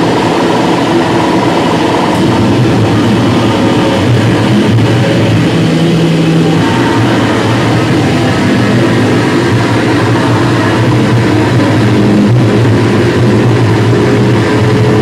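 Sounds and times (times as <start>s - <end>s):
distorted electric guitar noise: 0.0s - 15.0s.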